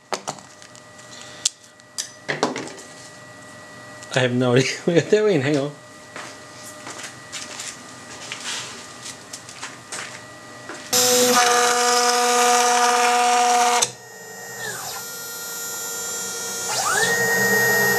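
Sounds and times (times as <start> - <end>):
quieter whine changing pitch: 10.2 - 17.9
router spindle whining loudly: 10.9 - 17.9.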